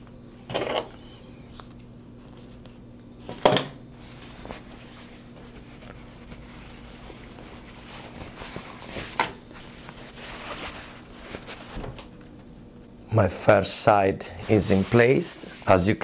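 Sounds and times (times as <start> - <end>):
faint steady hum: 0.0 - 16.0
fabric rustling: 3.9 - 12.4.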